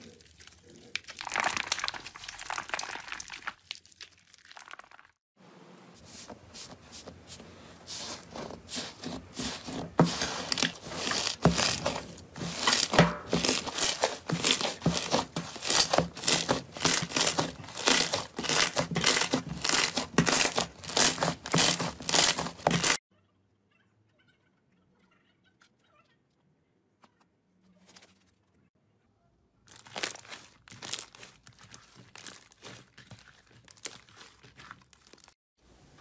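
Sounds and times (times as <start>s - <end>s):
slime crackling and squelching: 0.0s - 5.2s, 6.0s - 23.0s, 29.7s - 35.4s.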